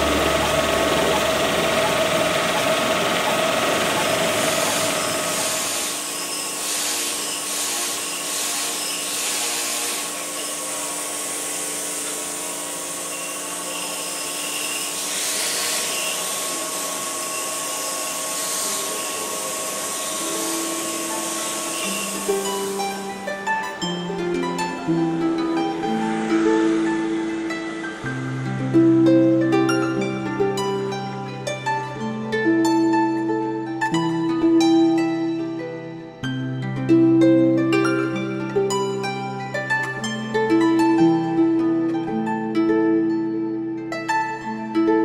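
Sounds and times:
cooling water jet hissing: 0.0s - 13.0s, 15.0s - 23.1s
wire saw cutting marble: 0.0s - 28.6s.

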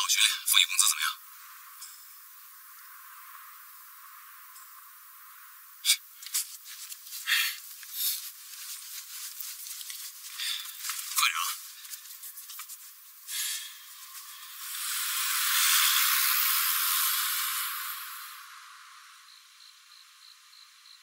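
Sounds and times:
towel rubbing over face: 6.2s - 16.1s.

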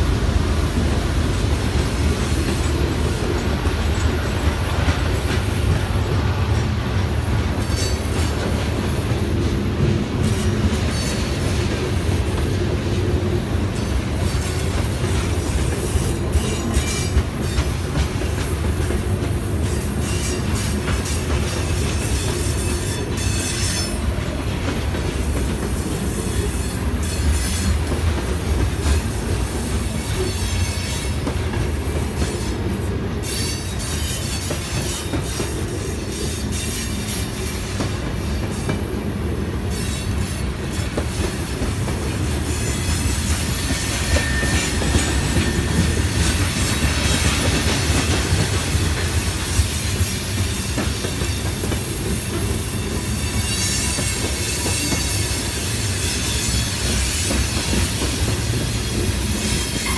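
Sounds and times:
train wheels rumbling on rail: 0.0s - 59.9s
thin wheel squeals: 43.8s - 46.0s.

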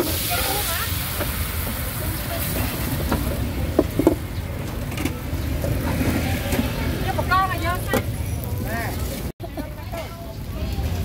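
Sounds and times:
batter frying with a hiss: 0.0s - 3.8s
low rumble of street traffic: 0.0s - 11.0s.

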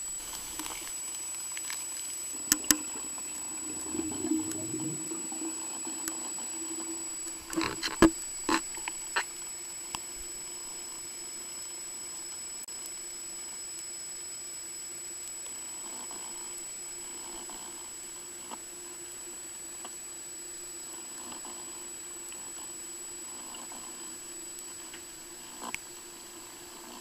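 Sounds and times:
thin high whine: 1.7s - 15.0s
muffled underwater hum: 2.0s - 9.2s
brief low rumble: 2.7s - 5.6s.

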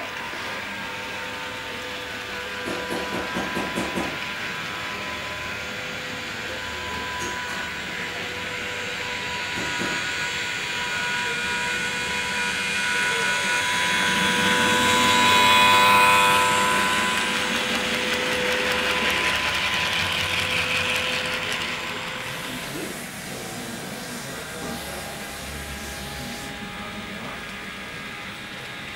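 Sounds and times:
model train hum: 0.0s - 28.9s.

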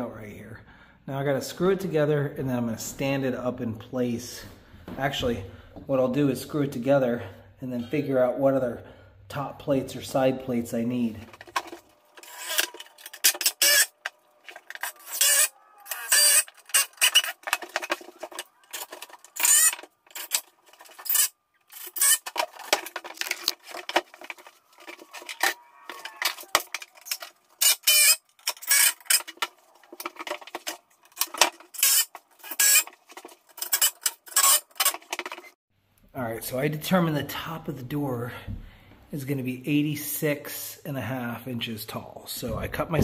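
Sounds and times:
wooden boards clattering and scraping: 16.5s - 21.2s, 22.0s - 25.6s, 29.2s - 33.6s.

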